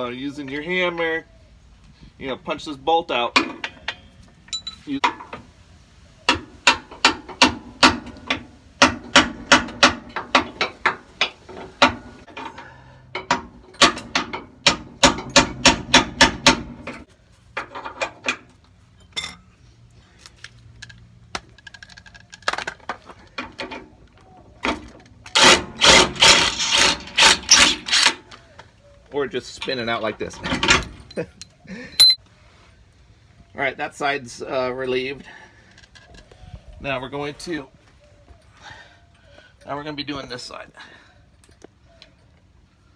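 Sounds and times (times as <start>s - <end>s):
impact wrench hammering: 13.2s - 16.9s.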